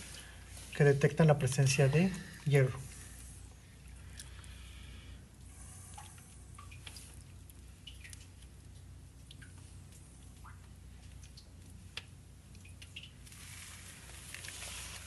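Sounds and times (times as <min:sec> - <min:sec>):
low steady hum: 0:00.0 - 0:15.0
water drips plinking: 0:05.4 - 0:13.4.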